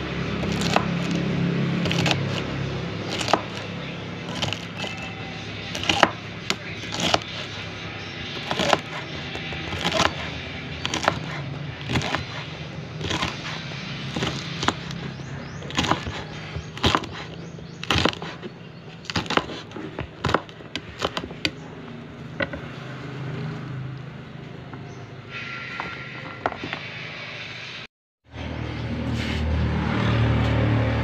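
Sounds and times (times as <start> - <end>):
knife chopping on wooden board: 0.4 - 7.6, 8.3 - 21.6.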